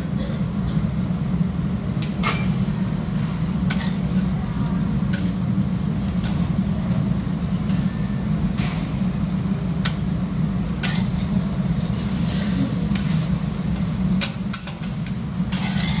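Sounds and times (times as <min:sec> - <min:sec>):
metal scrapers on steel griddle: 0:03.7 - 0:05.4, 0:06.2 - 0:08.0, 0:10.7 - 0:16.0.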